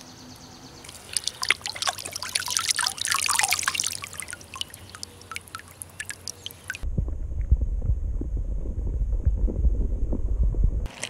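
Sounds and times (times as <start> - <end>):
water dripping: 0.8 - 6.8
water splashing and trickling: 0.8 - 6.8.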